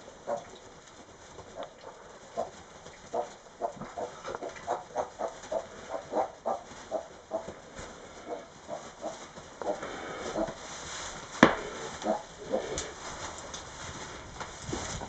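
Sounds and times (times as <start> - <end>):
pig grunting: 11.4 - 13.0.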